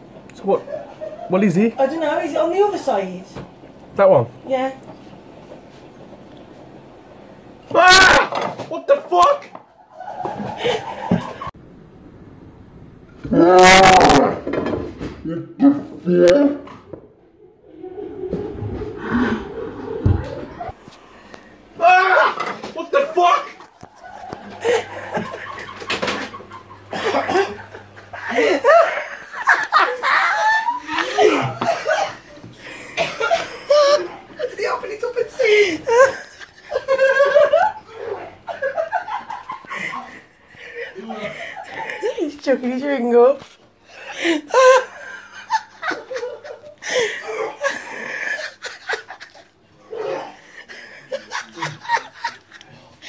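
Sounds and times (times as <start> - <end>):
people laughing: 9.8 - 11.6, 21.8 - 42.4, 43.9 - 53.0.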